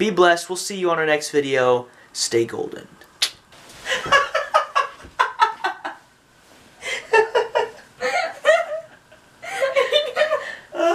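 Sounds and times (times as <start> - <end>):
person laughing: 3.8 - 6.0, 6.8 - 10.9.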